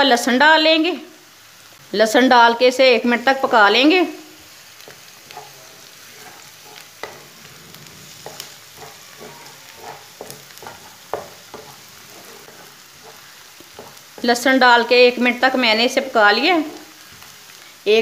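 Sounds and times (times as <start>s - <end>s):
onion and garlic sizzling in oil: 0.0s - 18.0s
wooden spatula scraping pan: 4.8s - 14.4s.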